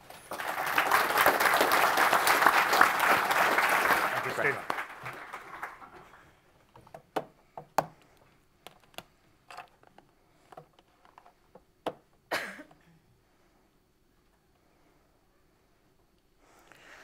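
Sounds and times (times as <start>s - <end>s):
audience applause: 0.0s - 6.3s.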